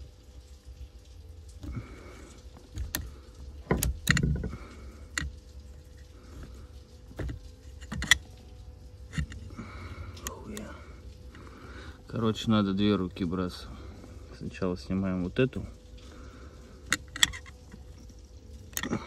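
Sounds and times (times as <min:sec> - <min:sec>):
screwdriver clicking and knocking: 0:02.8 - 0:03.1, 0:03.7 - 0:04.5.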